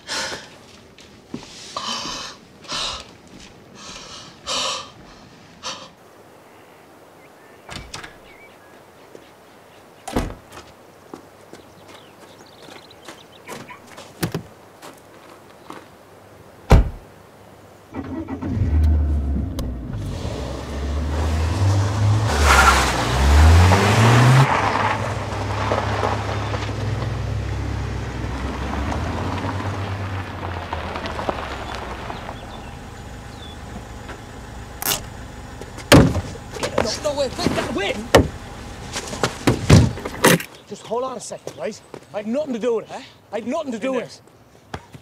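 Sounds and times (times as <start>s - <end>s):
tyres crunching on gravel: 0.0s - 4.1s, 10.3s - 16.0s, 20.0s - 42.8s
footsteps: 0.1s - 4.3s, 10.3s - 15.9s, 35.6s - 40.4s
car door shutting: 16.7s - 17.0s, 35.8s - 40.4s
car engine starting and revving: 18.0s - 40.2s
sharp knocks: 35.9s - 36.3s.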